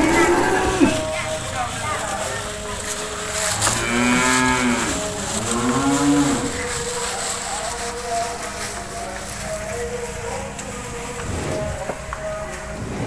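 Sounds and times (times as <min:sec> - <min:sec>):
cattle mooing: 0:00.0 - 0:01.2, 0:03.6 - 0:06.8, 0:11.2 - 0:12.0.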